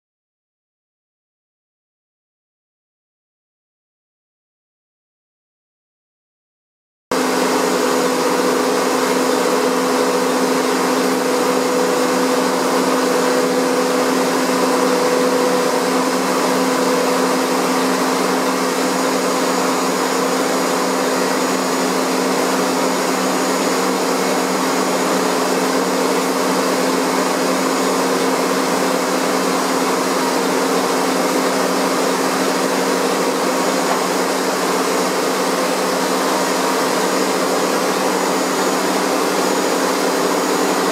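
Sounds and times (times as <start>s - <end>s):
factory machinery drone: 7.1s - 40.9s.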